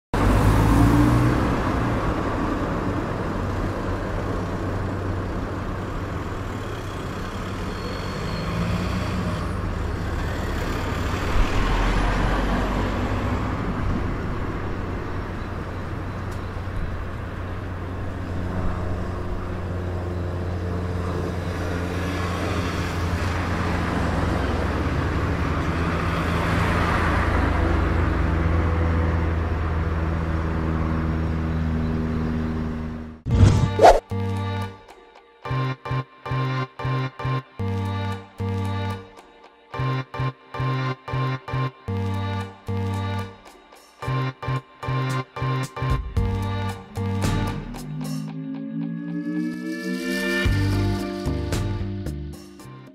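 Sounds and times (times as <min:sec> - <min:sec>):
low engine rumble of traffic: 0:00.2 - 0:33.5
cars passing: 0:00.2 - 0:34.0, 0:45.9 - 0:51.4.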